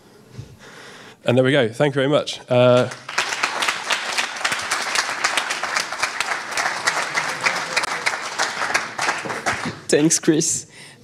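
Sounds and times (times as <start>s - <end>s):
audience applauding: 2.7s - 9.9s.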